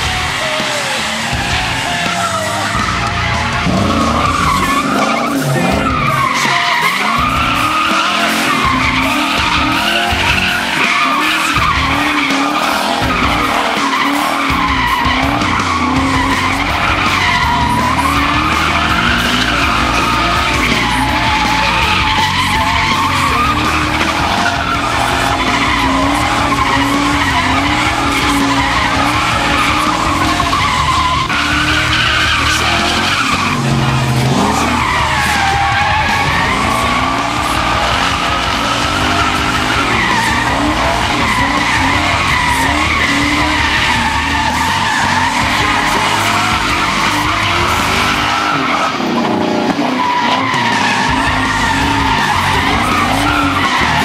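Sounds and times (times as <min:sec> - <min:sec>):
car engine revving: 0:00.0 - 0:54.0
tires squealing: 0:00.0 - 0:54.0.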